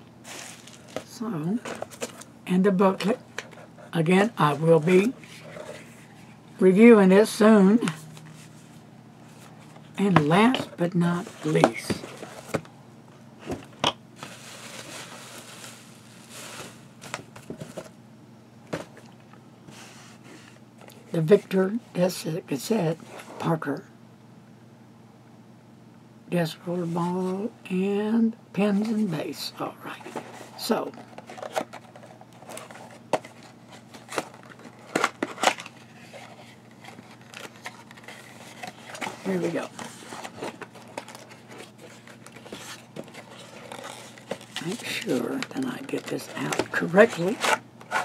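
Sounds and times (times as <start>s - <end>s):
bubble wrap rustling: 0.2s - 2.3s, 14.2s - 17.9s, 30.1s - 48.0s.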